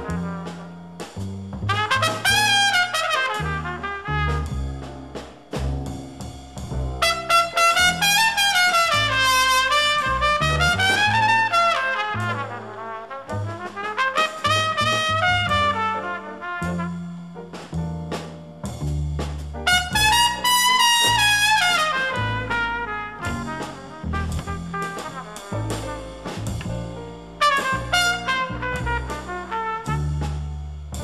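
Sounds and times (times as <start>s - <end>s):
double bass line: 0.0s - 31.0s
small-group jazz: 0.0s - 31.0s
horn lead line: 1.7s - 4.9s, 7.0s - 17.0s, 19.6s - 26.4s, 27.4s - 30.4s.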